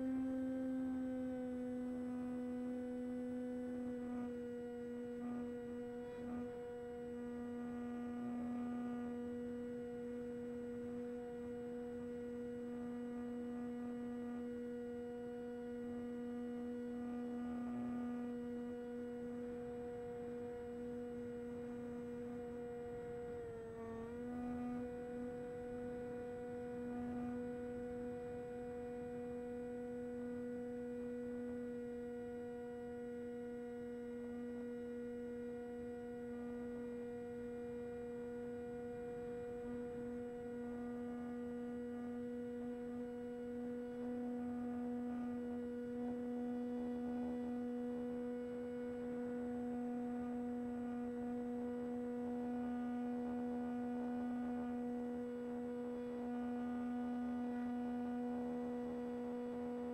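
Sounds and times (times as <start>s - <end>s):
electric motor and propeller humming: 0.0s - 59.9s.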